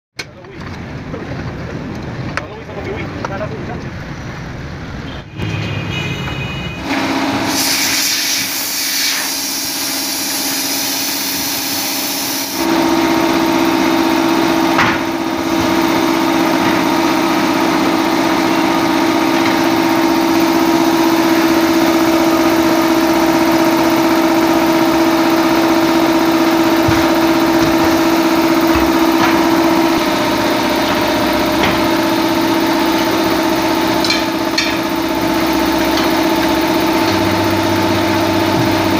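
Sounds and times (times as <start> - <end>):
machine motor humming: 9.5 - 38.9.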